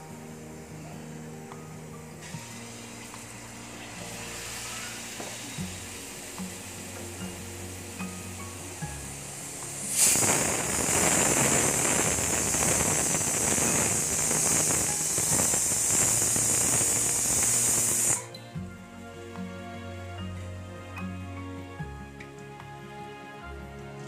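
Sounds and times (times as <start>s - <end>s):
faint music: 0.0s - 24.0s
batter sizzling in hot oil: 2.2s - 18.3s.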